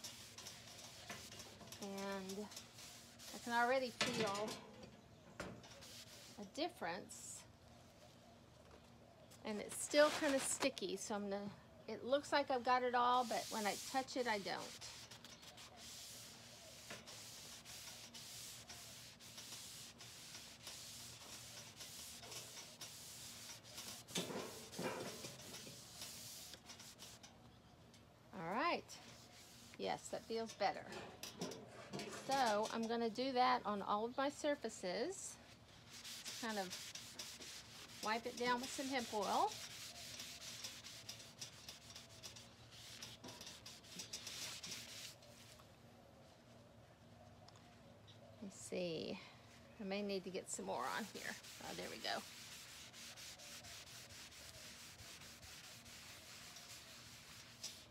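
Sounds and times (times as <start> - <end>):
towel rubbing on metal: 0.0 - 4.6, 5.7 - 6.6, 9.8 - 10.7, 12.2 - 27.2, 28.6 - 33.3, 35.7 - 45.6, 50.6 - 57.9.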